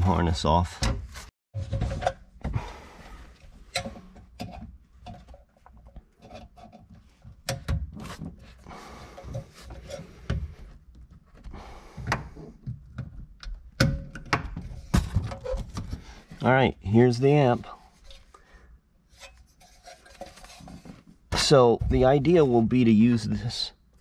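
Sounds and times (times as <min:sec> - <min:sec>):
clicks and knocks of car parts: 0:03.7 - 0:08.4, 0:10.2 - 0:16.0.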